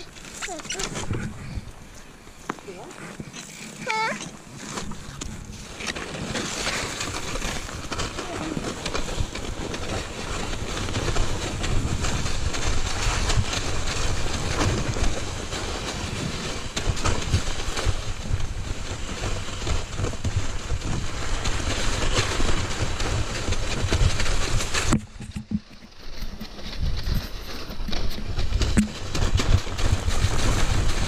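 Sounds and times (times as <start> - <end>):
bike tyres rolling over snow: 0.0 - 31.0
knocks and rattles: 21.7 - 31.0.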